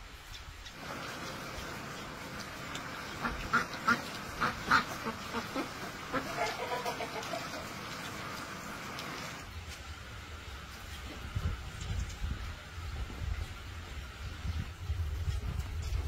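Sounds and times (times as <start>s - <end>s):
farmyard fowl calling: 2.9s - 8.3s.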